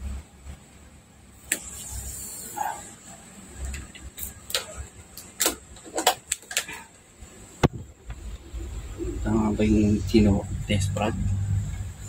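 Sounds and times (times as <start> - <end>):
clicks of cords being handled: 3.7 - 6.8.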